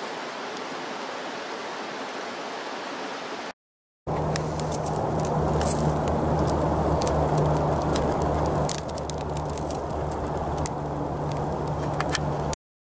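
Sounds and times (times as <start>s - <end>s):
campfire crackling and popping: 4.1s - 12.6s
low rumbling hum: 4.1s - 12.6s.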